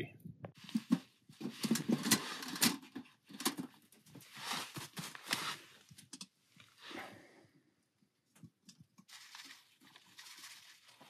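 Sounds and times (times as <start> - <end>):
camping gear rustling: 0.6 - 7.4, 9.0 - 11.0.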